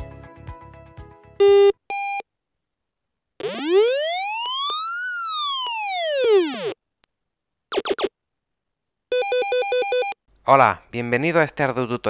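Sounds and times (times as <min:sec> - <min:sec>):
background music: 0:00.0 - 0:01.5
siren-like electronic tone sweep: 0:03.4 - 0:06.8, 0:07.7 - 0:08.1.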